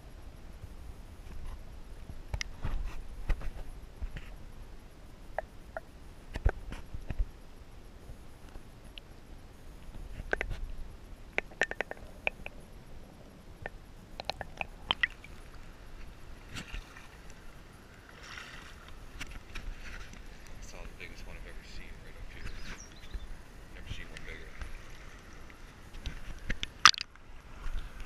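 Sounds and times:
faint low rumble: 0.0 - 28.0
moving water hiss: 0.0 - 28.0
underwater clicks and knocks: 5.4 - 7.2, 10.2 - 10.6, 11.3 - 12.6, 13.6 - 16.9, 25.5 - 27.1.

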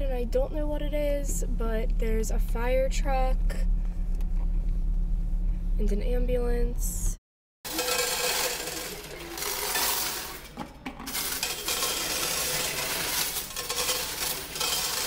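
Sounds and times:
coins clattering into metal tray: 7.7 - 15.0
coins raked around tray: 7.7 - 15.0.

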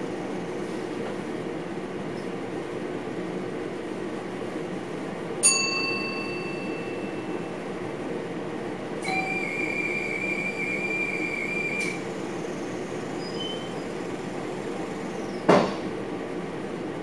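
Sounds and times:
train cab running noise: 0.0 - 17.0
high warning tone: 5.4 - 7.6, 9.0 - 12.6.

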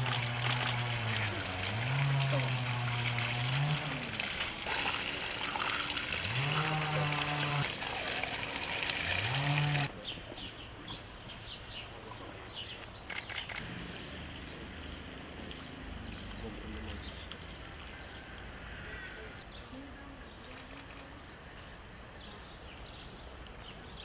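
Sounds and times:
water spraying from hose: 0.0 - 9.9, 13.6 - 17.8
low drawn-out animal calls: 5.6 - 8.2.

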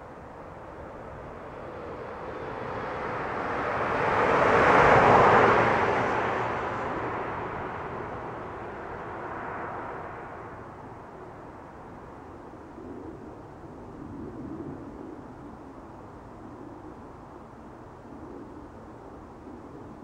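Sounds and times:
vehicle driving past: 3.1 - 10.6.

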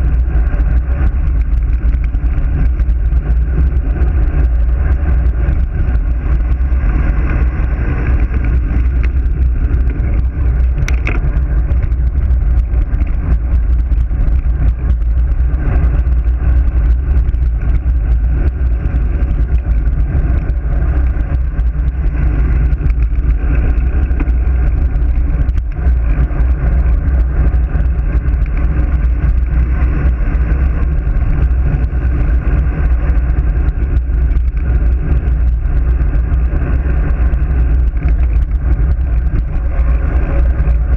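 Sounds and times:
wind rumbling on microphone: 0.0 - 40.9.

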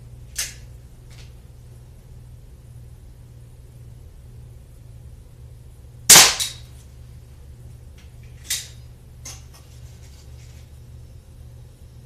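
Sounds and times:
pellet pistol shot crack: 6.1 - 6.6.

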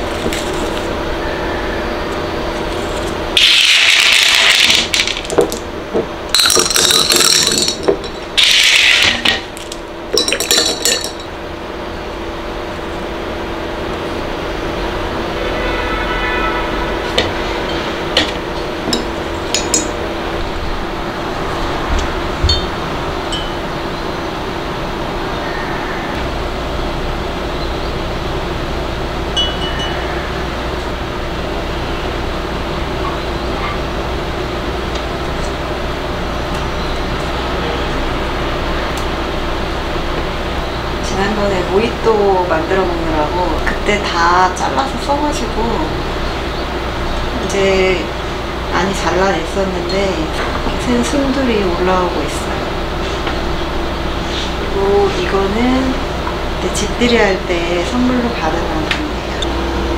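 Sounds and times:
rushing room noise with hum: 0.0 - 59.9
pebbles clinking against glass: 3.4 - 5.6, 6.4 - 11.3
high-pitched clink: 23.3 - 23.6, 29.4 - 30.2.

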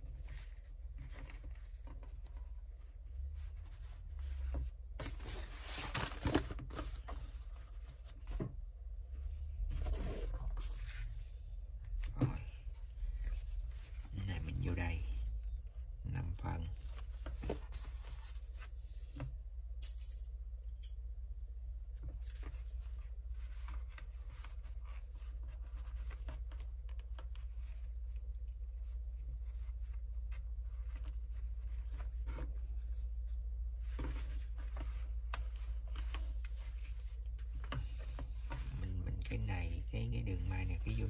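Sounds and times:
fabric rustling and folding: 22.1 - 39.4.

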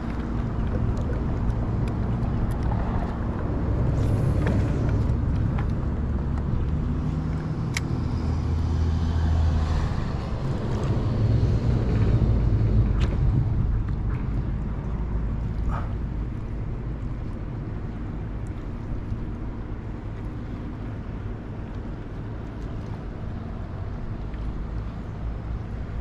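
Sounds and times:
low engine rumble: 0.0 - 26.0.

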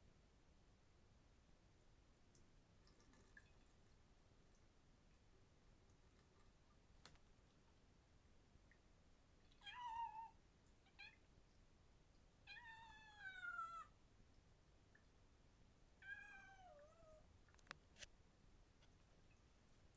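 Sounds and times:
kitten meowing: 9.6 - 10.3, 12.5 - 13.9.

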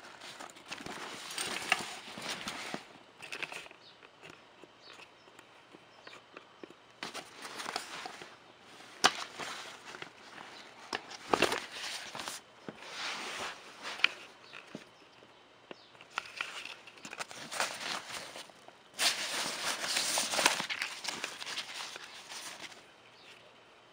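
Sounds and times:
fabric bag rustling: 0.0 - 2.9, 17.1 - 22.8.

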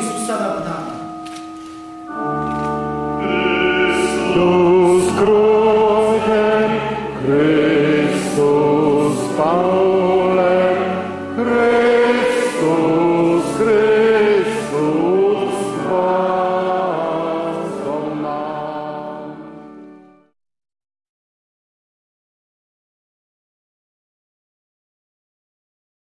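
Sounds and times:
group singing a hymn: 3.2 - 19.6.

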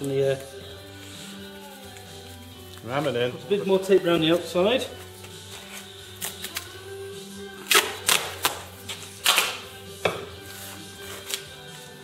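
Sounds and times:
tape ripping off roll: 7.6 - 9.7.

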